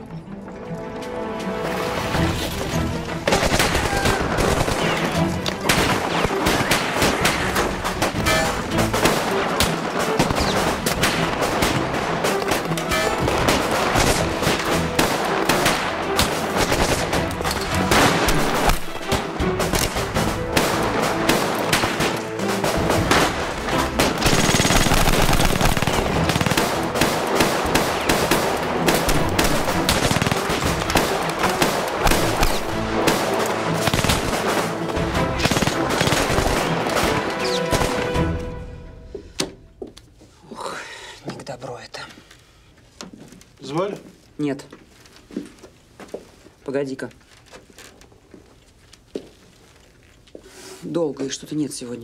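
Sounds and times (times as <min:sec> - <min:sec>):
music score: 0:00.0 - 0:06.1
background film music: 0:00.0 - 0:42.8
pistol gunshots: 0:03.3 - 0:38.1.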